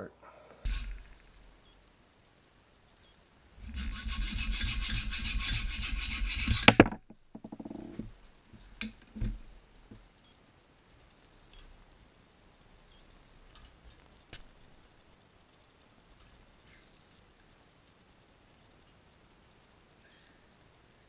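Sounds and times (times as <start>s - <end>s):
hacksaw sawing metal bolt: 0.7s - 1.1s, 3.6s - 6.8s.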